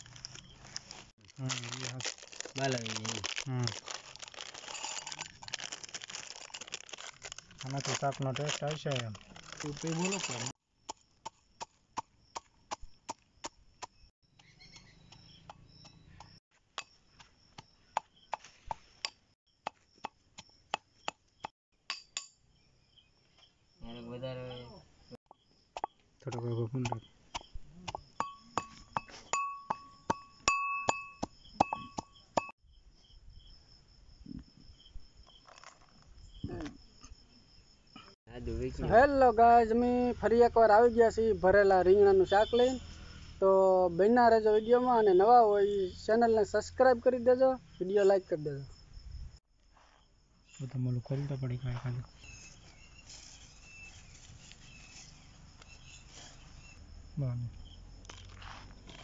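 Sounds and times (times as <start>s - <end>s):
crickets chirping: 0.0s - 59.0s
metal pestle clinking in mortar: 28.2s - 32.0s.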